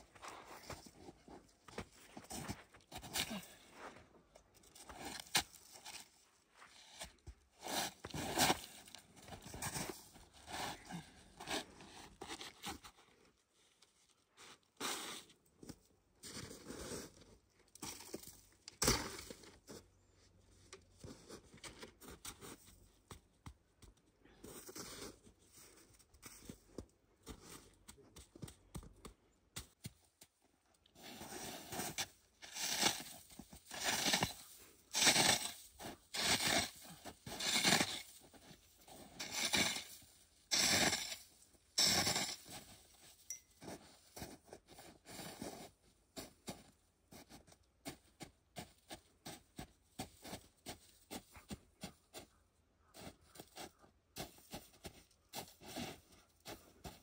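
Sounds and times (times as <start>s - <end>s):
shovel scraping snow: 7.6s - 8.8s, 14.8s - 15.3s, 31.0s - 42.8s.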